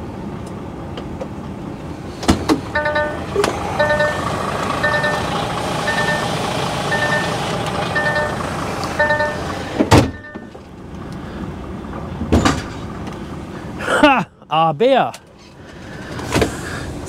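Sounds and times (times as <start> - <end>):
truck engine running: 0.0 - 14.1
reversing alarm beeps: 2.8 - 8.4, 9.0 - 10.6
heavy clunk: 12.0 - 13.1.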